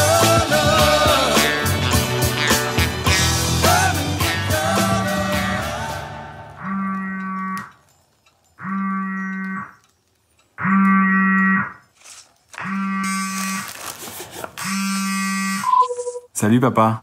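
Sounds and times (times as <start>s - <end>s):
wrapping paper tearing: 12.0s - 14.7s
phone buzzing on vibrate: 12.6s - 13.8s, 14.6s - 16.3s.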